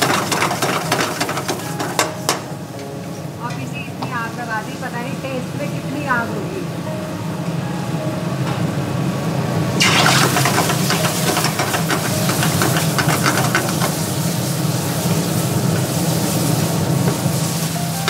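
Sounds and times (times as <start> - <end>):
liquid poured into hot pan: 9.8 - 12.5
steam hissing and sizzling: 9.8 - 18.0.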